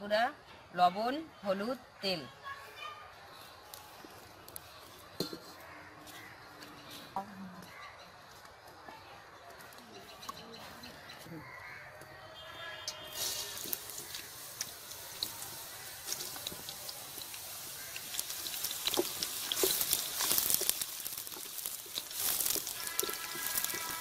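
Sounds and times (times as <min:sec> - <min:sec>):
onions sizzling in hot oil: 0:13.1 - 0:24.0.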